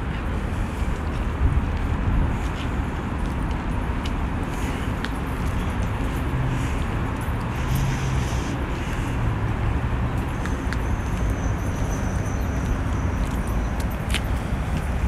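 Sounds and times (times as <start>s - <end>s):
low traffic rumble: 0.0s - 15.0s.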